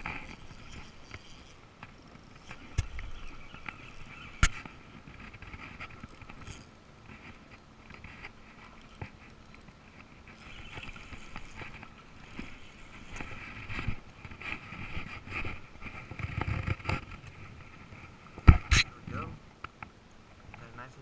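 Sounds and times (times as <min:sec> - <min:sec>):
camera housing rubbing on clothing: 0:00.0 - 0:07.4, 0:10.0 - 0:18.9.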